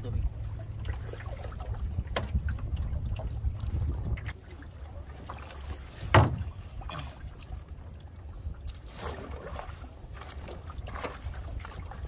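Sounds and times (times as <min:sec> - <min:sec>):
steady low rumble: 0:00.0 - 0:05.2
paddle strokes splashing water: 0:00.0 - 0:12.0.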